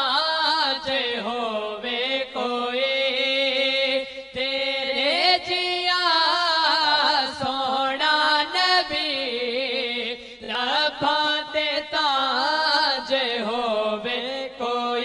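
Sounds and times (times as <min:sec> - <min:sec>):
two men singing: 0:00.0 - 0:15.0.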